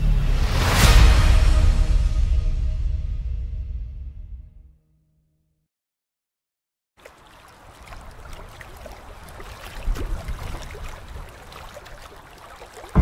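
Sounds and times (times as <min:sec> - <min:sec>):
stream water babbling: 0:07.0 - 0:13.0.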